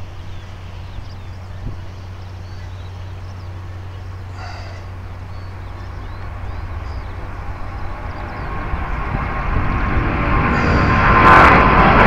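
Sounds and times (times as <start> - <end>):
faint bird chirps: 0.0 - 8.5
jet engines rumbling at takeoff: 0.0 - 12.0.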